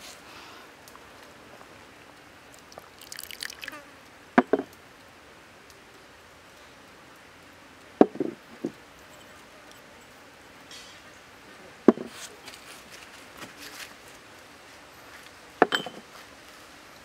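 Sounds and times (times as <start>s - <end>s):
dry granules pattering: 0.0s - 3.9s
sharp knocks on wood: 4.4s - 4.7s, 8.0s - 8.8s, 11.9s - 12.1s.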